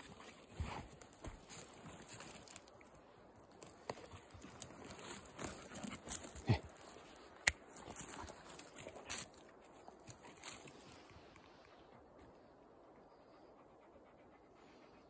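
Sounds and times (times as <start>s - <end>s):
dry twigs crackling underfoot: 0.0s - 11.6s
sharp click or snap: 7.4s - 7.6s.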